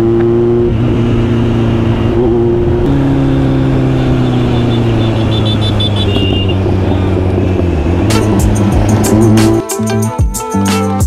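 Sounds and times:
motorcycle engine running: 0:00.0 - 0:09.8
road and wind noise: 0:00.0 - 0:10.2.

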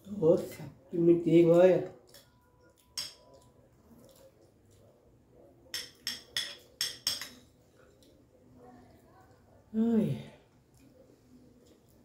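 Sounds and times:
metal spoon clinking on glass plate: 0:02.2 - 0:03.3, 0:05.7 - 0:07.5.

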